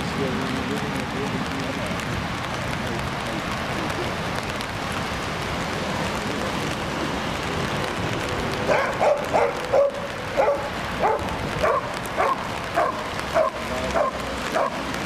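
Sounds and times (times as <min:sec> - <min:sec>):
young dog barking: 0:08.7 - 0:14.8.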